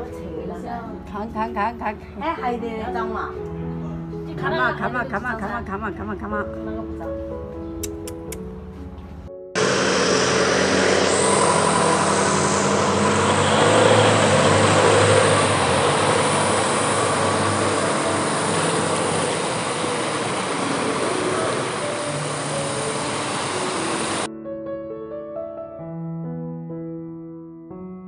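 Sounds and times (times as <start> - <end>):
floodwater rushing: 9.6 - 24.3.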